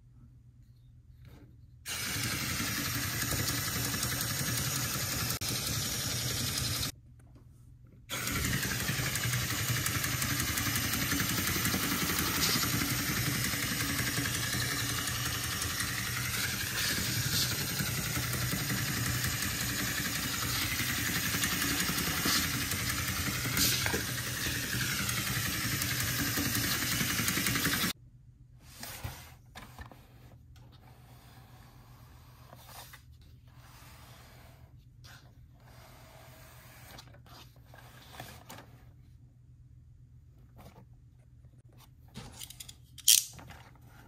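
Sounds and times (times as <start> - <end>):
toy motor and gears whirring: 1.9 - 6.9, 8.1 - 28.0.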